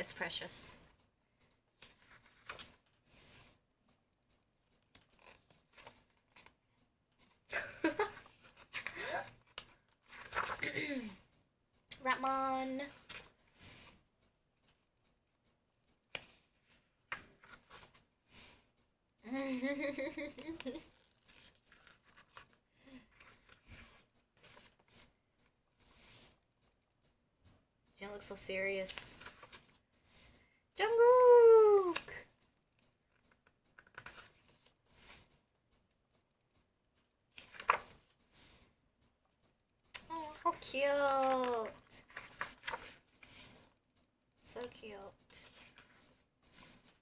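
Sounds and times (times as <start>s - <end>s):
photobook pages turning: 1.8s - 3.5s, 4.8s - 6.6s, 9.5s - 10.7s, 17.1s - 18.0s, 20.9s - 25.1s, 29.1s - 29.8s, 33.2s - 35.2s, 37.4s - 38.4s, 40.4s - 43.7s
woman laughing: 7.5s - 8.3s, 19.2s - 21.0s.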